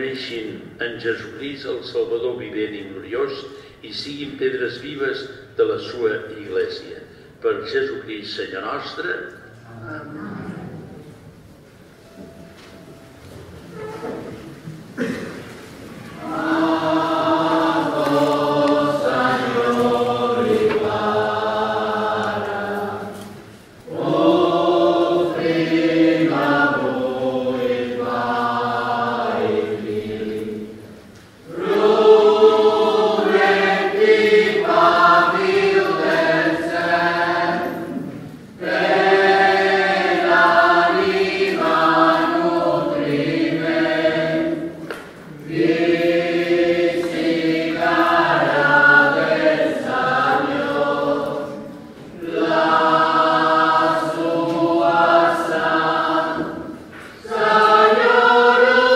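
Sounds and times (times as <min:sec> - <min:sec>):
choir singing a hymn: 0:13.7 - 0:58.9.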